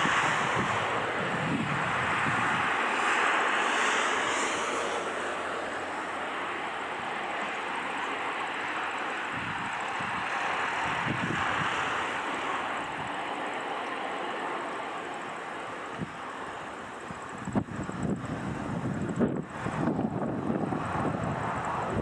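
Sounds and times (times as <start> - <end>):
jet engines rushing at low thrust: 0.0 - 22.0.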